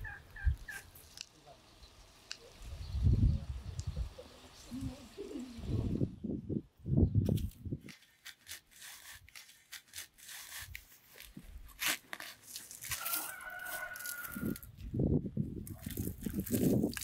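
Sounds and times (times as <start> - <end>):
trowel digging in soil: 7.2 - 14.8, 15.6 - 17.0
rooster crowing: 13.0 - 14.6.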